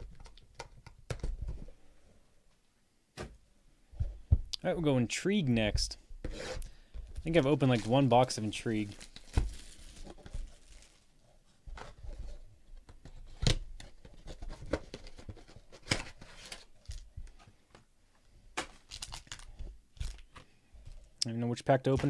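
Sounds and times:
shrink wrap tearing and crinkling: 0:07.3 - 0:11.2, 0:18.6 - 0:20.4.

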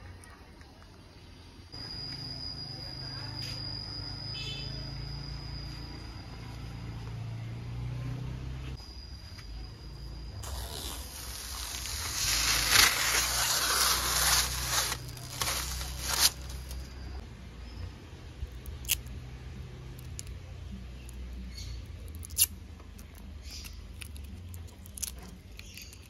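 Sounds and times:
plastic film peeling and crackling: 0:10.4 - 0:16.9, 0:22.1 - 0:26.0.

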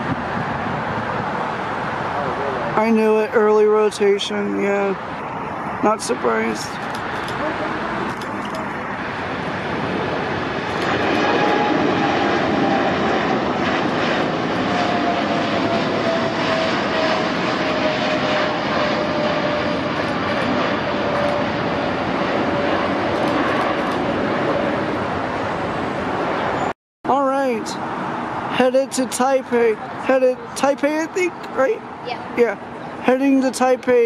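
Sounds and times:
falling jet engine whine: 0:00.0 - 0:26.7
jet engines roaring: 0:00.0 - 0:34.0.

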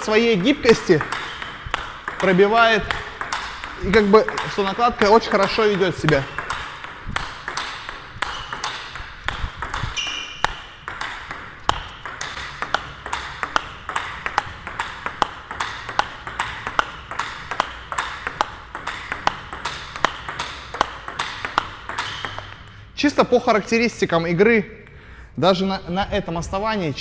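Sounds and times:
table tennis ball clicking: 0:00.0 - 0:22.8
high squeak: 0:10.0 - 0:10.5.

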